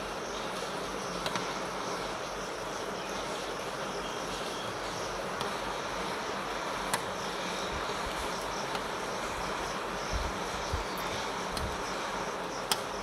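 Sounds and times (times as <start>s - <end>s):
light rain hissing: 0.0s - 13.0s
faint ticks: 11.0s - 11.9s, 12.6s - 13.0s.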